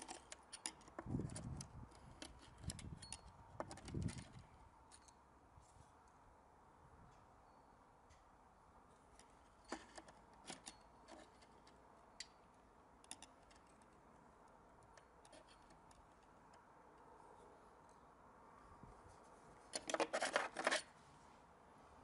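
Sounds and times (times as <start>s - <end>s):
metallic clicks of hand tools: 0.0s - 5.2s, 13.0s - 14.0s.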